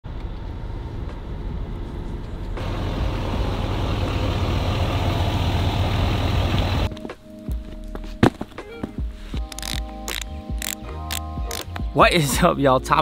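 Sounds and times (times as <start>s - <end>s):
pickup truck engine rumbling: 0.1s - 6.9s.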